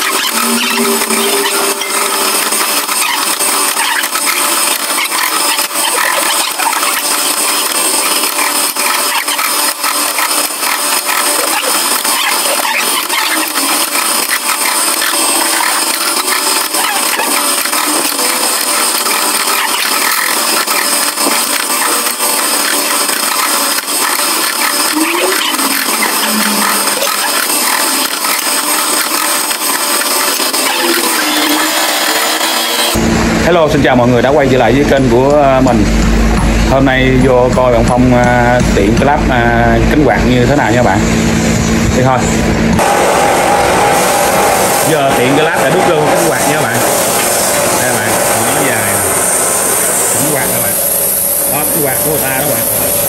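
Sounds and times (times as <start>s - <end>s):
faint high whine: 0.0s - 5.1s, 30.6s - 53.0s
power tools grinding metal: 0.0s - 53.0s.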